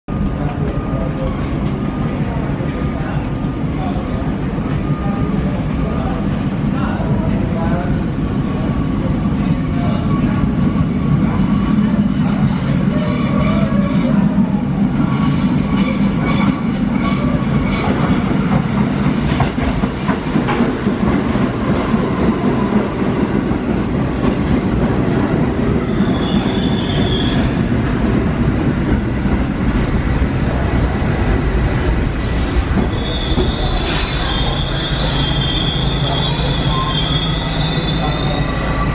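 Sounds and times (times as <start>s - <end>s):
train wheels rumbling on rails: 0.1s - 38.9s
high wheel squeal: 32.4s - 38.9s.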